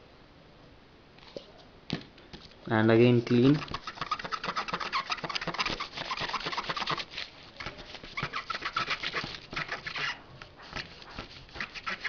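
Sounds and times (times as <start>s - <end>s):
eraser scrubbing with squeaks: 3.2s - 12.0s.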